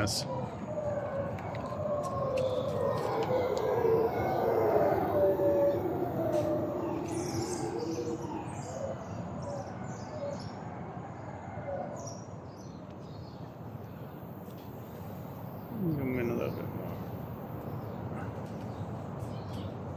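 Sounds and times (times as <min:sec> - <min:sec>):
howler monkeys roaring: 0:00.0 - 0:12.2, 0:15.5 - 0:18.8.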